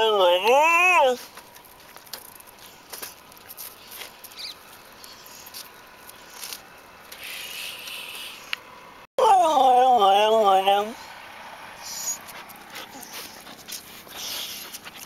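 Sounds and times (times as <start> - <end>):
dog moving on asphalt: 1.2 - 7.2, 11.9 - 15.0.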